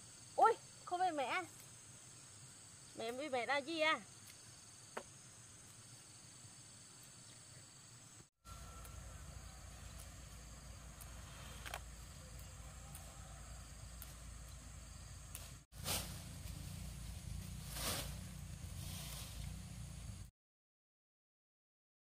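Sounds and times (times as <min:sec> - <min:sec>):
crickets trilling: 0:00.0 - 0:20.3
low steady rumble: 0:16.0 - 0:20.3.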